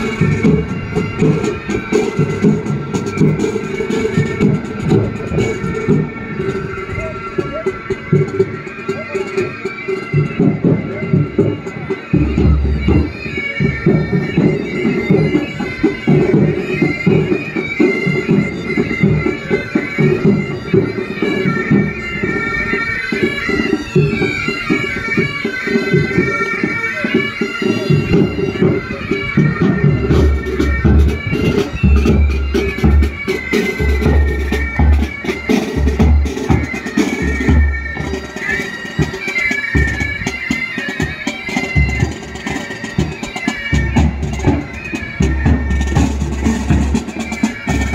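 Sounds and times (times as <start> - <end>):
bagpipes playing a tune: 0.0 - 47.9
snare and bass drums: 27.7 - 39.2, 39.8 - 47.9.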